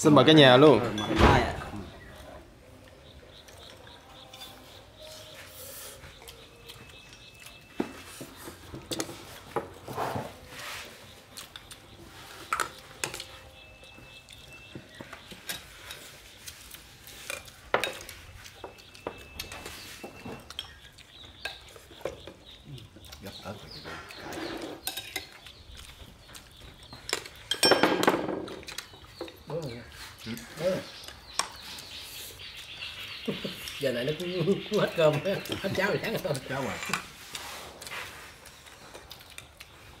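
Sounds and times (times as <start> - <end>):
utensils clinking against bowls: 12.4 - 22.5, 24.0 - 25.9, 26.9 - 31.6.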